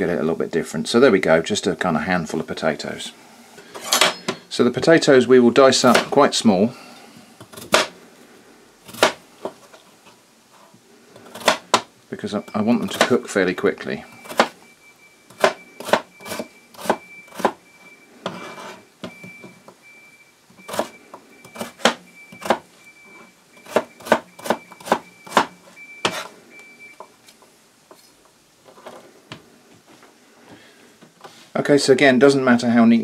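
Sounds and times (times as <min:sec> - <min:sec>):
knife chopping on plastic board: 0:11.2 - 0:11.9, 0:14.3 - 0:14.6, 0:15.4 - 0:17.6, 0:23.6 - 0:26.3.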